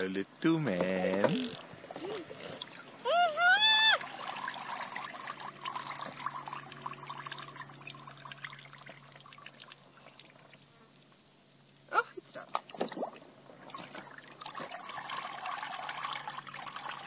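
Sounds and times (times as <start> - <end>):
steady high hiss: 0.0 - 17.0
water pouring into bath: 4.0 - 9.8, 14.2 - 17.0.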